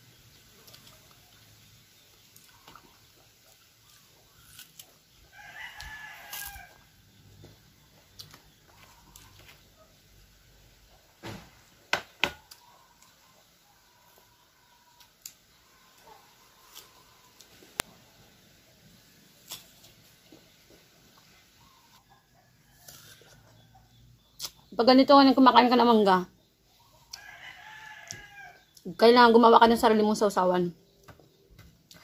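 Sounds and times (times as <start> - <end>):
rooster crowing: 5.3 - 6.9, 27.1 - 28.7.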